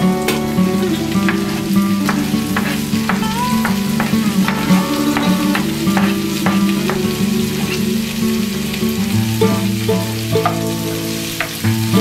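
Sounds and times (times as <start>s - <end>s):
background music: 0.0s - 12.0s
vegetables sizzling in oil: 0.0s - 12.0s
spatula scraping pan: 0.3s - 8.7s.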